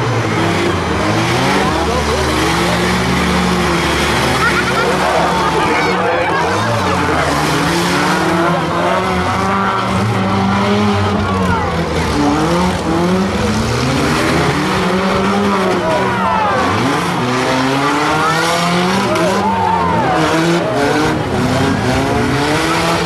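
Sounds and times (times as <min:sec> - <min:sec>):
car engines running and revving: 0:00.0 - 0:23.0.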